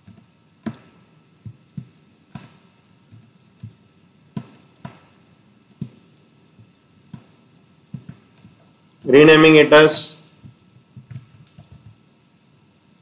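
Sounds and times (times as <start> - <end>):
computer mouse clicking: 0.0 - 0.8, 1.7 - 3.8, 5.7 - 6.0, 7.9 - 8.7, 10.4 - 12.0.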